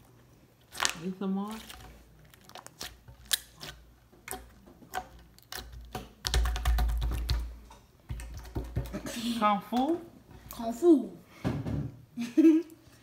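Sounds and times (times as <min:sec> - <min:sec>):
slime crackling and popping: 0:00.6 - 0:07.4.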